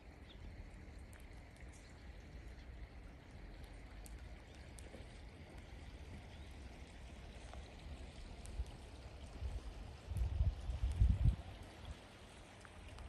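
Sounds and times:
trickle of running water: 0.0s - 13.0s.

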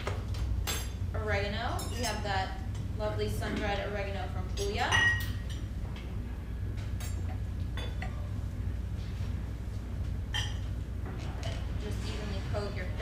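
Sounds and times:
low room hum: 0.0s - 13.0s
utensils clinking on dishes: 0.6s - 1.0s, 1.7s - 3.8s, 4.5s - 5.7s, 7.0s - 8.3s, 10.3s - 12.2s.

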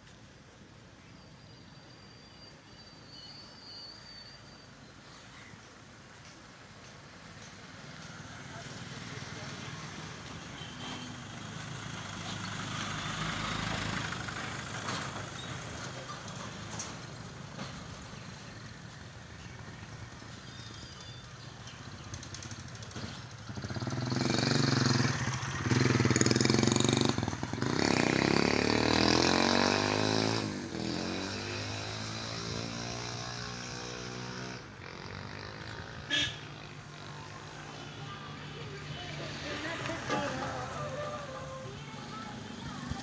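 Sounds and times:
truck engine passing by: 7.6s - 18.5s, 22.2s - 43.0s.

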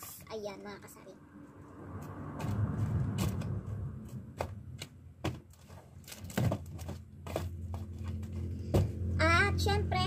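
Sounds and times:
low steady hum: 2.7s - 10.0s
packs knocking in cardboard box: 5.2s - 7.9s.

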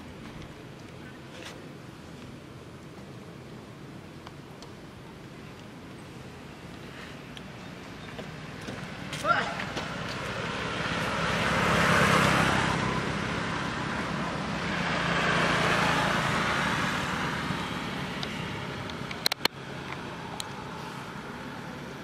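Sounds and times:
motorbikes passing: 6.3s - 22.0s
sharp clicks: 18.2s - 20.6s.

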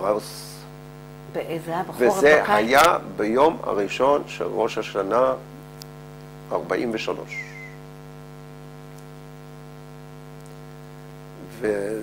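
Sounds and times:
man speaking: 0.0s - 0.7s, 2.0s - 5.5s, 6.5s - 7.8s, 11.4s - 12.0s
electrical mains hum: 0.0s - 12.0s.

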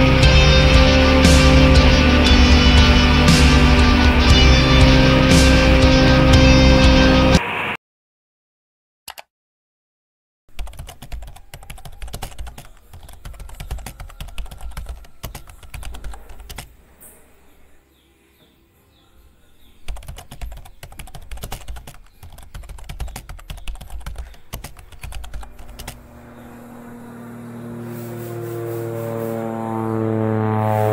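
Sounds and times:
fast irregular clicks and taps: 10.5s - 16.7s, 19.9s - 26.0s
low steady hum: 25.4s - 30.9s.

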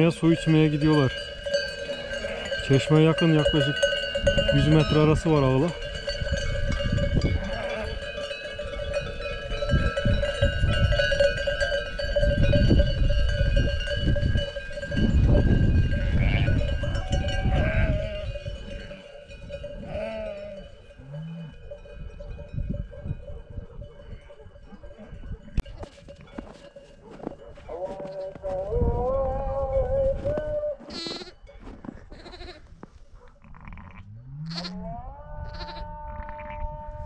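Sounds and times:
livestock bells ringing: 0.0s - 28.5s
sheep and goats bleating: 1.6s - 5.2s, 7.3s - 8.2s, 15.9s - 21.7s, 27.7s - 32.8s, 33.4s - 37.0s.

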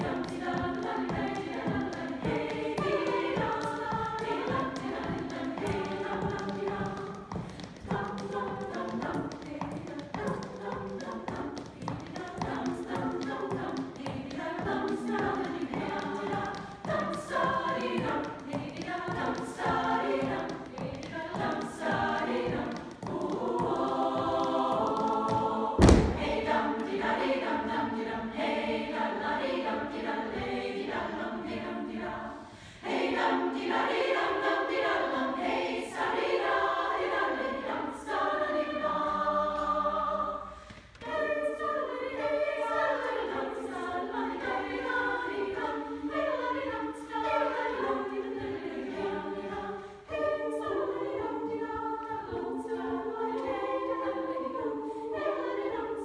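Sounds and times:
women's choir singing a cappella: 0.0s - 56.0s
loud thump: 25.8s - 26.6s.

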